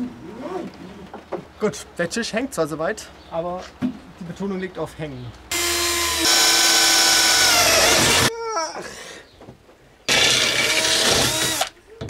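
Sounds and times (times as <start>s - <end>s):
cordless drill boring into metal: 5.5s - 8.3s, 10.1s - 11.8s.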